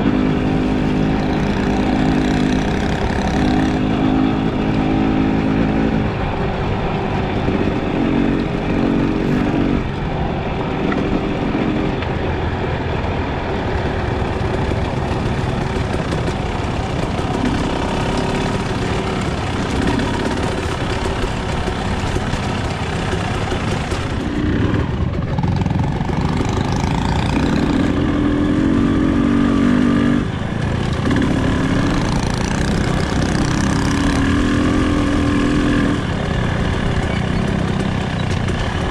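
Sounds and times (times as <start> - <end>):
dirt bike engine revving: 0.0 - 12.2, 13.8 - 38.9.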